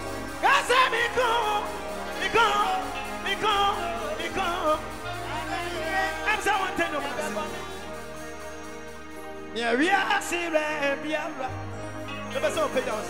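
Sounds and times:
gospel band playing: 0.0s - 13.0s
sustained bass notes: 0.0s - 13.0s
man singing into a microphone: 0.4s - 7.9s, 9.6s - 11.6s.

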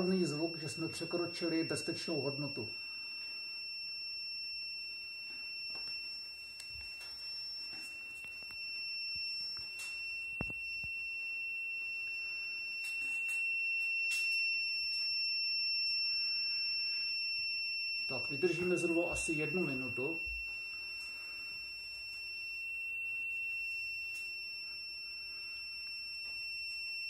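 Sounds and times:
high-pitched alarm tone: 0.0s - 27.0s.

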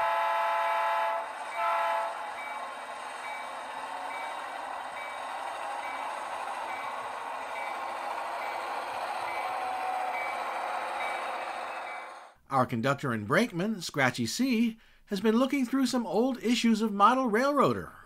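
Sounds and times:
model locomotive horn blast: 0.0s - 2.6s
locomotive bell ringing: 1.2s - 12.2s.

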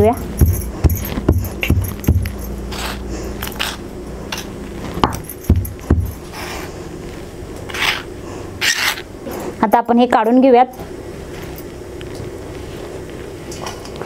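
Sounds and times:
spoon scraping in stone mortar: 2.7s - 3.8s, 7.7s - 9.0s.

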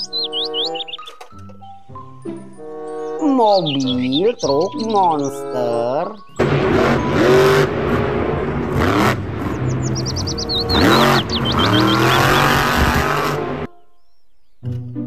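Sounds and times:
truck engine revving hard: 6.4s - 13.7s.

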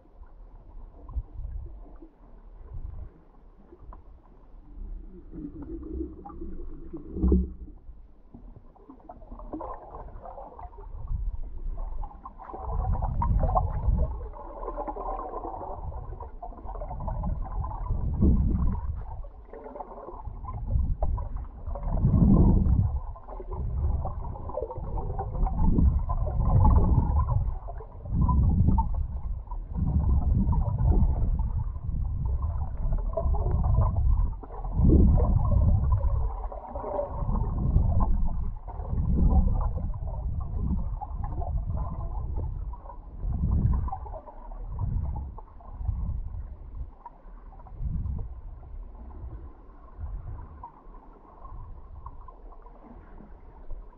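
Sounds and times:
muffled underwater water rushing: 0.0s - 53.9s.

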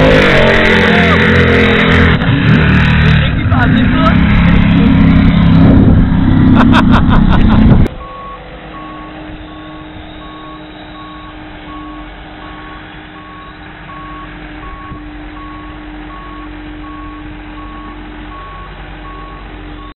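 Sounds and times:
boat engines running loud: 0.0s - 19.9s
forklift engine hum: 0.0s - 19.9s
reversing beeper: 7.9s - 19.9s.

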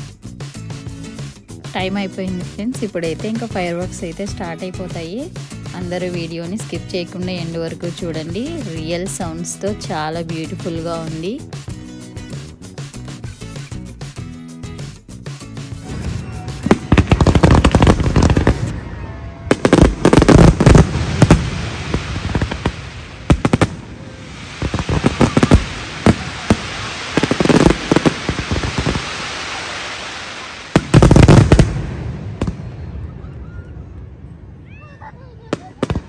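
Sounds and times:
fireworks crackling: 14.8s - 33.5s, 35.4s - 36.0s.

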